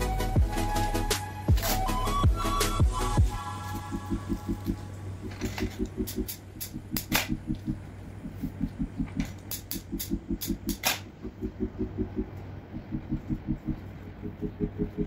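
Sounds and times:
pulsing background music beat: 0.0 - 15.0
scissors snipping stems: 9.3 - 11.0.

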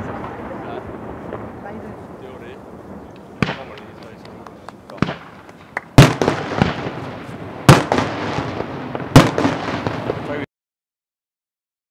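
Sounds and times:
small firework pops: 1.2 - 1.6, 3.1 - 10.3.

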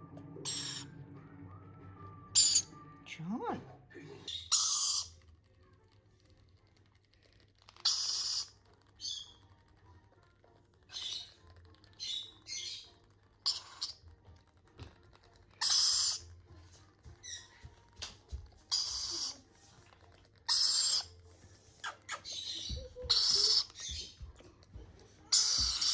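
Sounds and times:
lorikeet chicks squawking: 0.4 - 0.9, 2.4 - 2.8, 4.3 - 5.2, 7.8 - 9.4, 12.0 - 14.0, 15.6 - 16.3, 18.6 - 19.5, 20.4 - 21.2, 21.8 - 24.2, 25.3 - 25.9.

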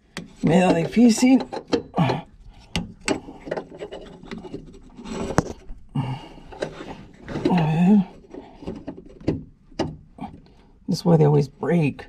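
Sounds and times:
rattling handling noise: 0.0 - 10.8
man grunting and straining: 1.9 - 2.4, 5.9 - 6.5, 7.3 - 8.2.

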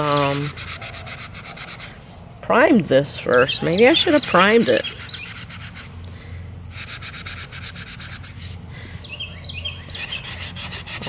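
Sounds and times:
sanding sponge scuffing painted wood: 0.0 - 2.7, 6.7 - 8.6, 9.9 - 11.0.

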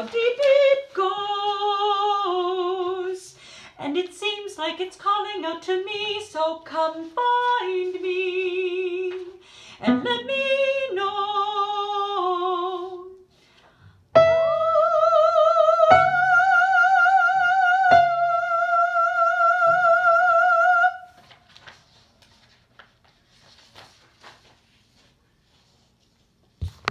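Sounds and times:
soprano voice singing: 0.0 - 13.3, 14.2 - 21.1
piano chords: 14.2 - 20.1.

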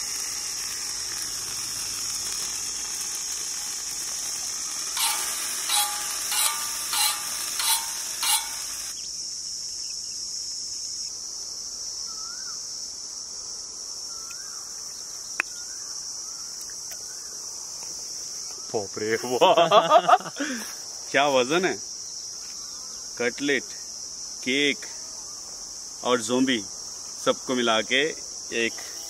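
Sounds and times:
insects chirring: 0.0 - 29.0
faint whistled bird calls: 12.0 - 12.6.

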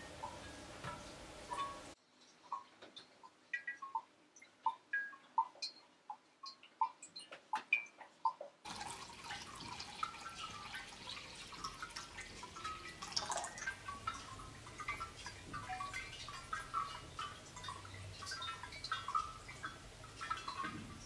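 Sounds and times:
water drops plinking: 3.5 - 21.0
water pouring from jug: 8.7 - 21.0.

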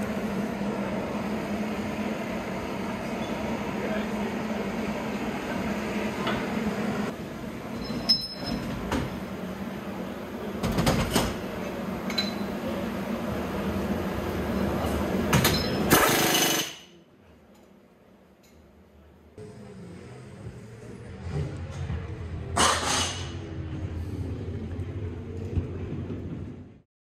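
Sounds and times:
pneumatic tool burst: 15.9 - 16.9, 22.6 - 23.4
steady hum: 18.7 - 26.8.

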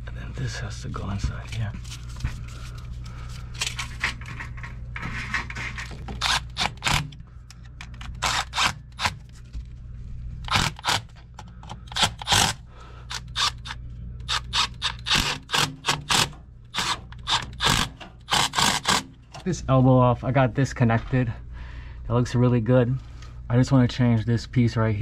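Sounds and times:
steady low hum: 0.0 - 25.0
cordless drill pulses: 6.2 - 7.2, 8.0 - 9.2, 10.5 - 19.1.

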